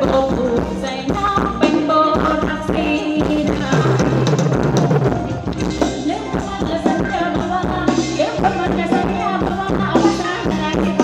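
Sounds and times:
live band dance music: 0:00.0 - 0:11.0.

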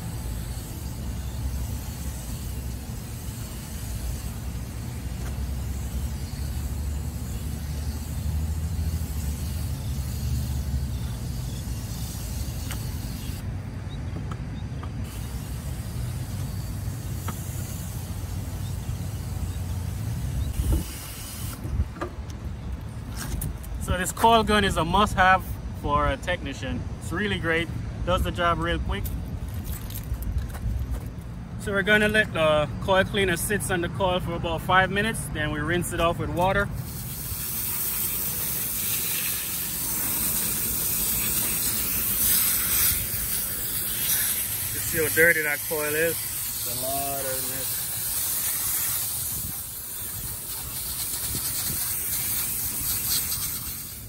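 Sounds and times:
spray gun hissing: 0:00.0 - 0:13.4, 0:15.0 - 0:21.7, 0:36.7 - 0:54.0.

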